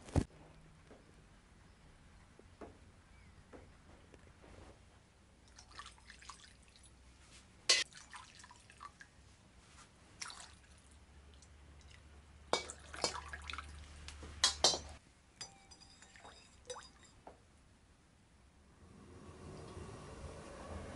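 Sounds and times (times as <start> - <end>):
spoon clinking on bowl: 14.4 - 17.2.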